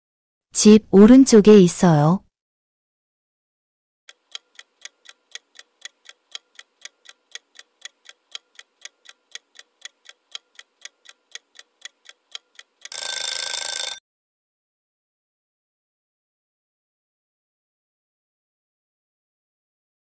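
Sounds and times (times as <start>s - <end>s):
clock ticking: 4.1s - 14.0s.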